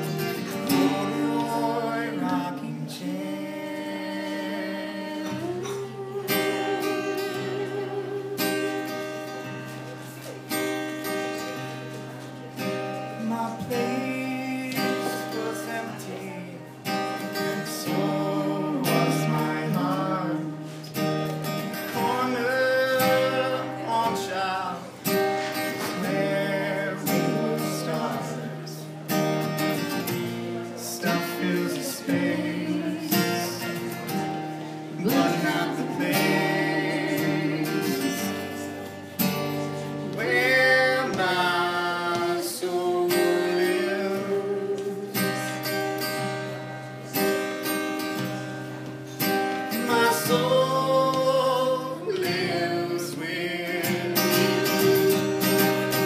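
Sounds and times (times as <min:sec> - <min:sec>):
person singing: 0:00.0 - 0:09.2, 0:30.8 - 0:46.6, 0:49.5 - 0:56.0
strummed acoustic guitar: 0:00.0 - 0:56.0.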